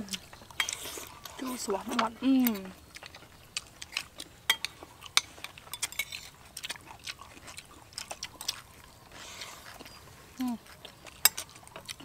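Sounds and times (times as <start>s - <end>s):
chewing: 0.0s - 12.0s
spoons scraping plates: 0.5s - 1.6s, 4.5s - 6.4s.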